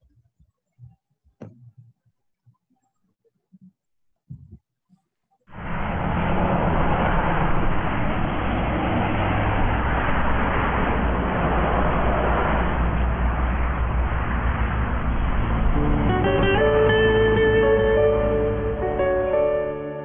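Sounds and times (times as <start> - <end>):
bus engine rumble and road noise: 5.5 - 20.0.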